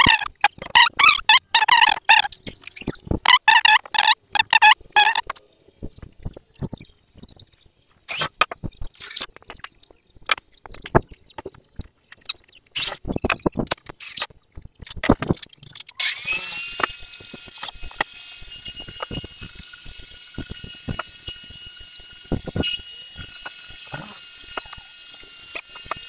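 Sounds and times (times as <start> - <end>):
knocks and clicks: 0.0 - 6.9, 8.2 - 15.9
machine running with hiss and whine: 16.0 - 26.0.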